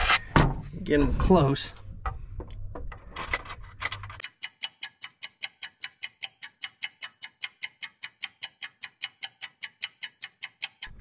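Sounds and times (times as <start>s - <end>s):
rapid even ticking: 4.2s - 11.0s.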